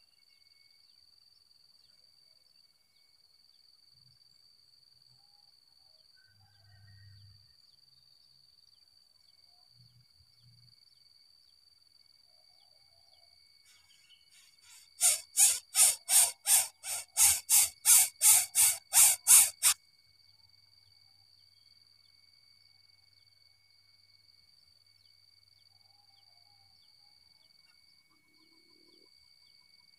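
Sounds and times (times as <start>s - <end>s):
faint high insect tone: 0.0s - 29.9s
bird giving harsh hissing calls: 13.7s - 19.8s.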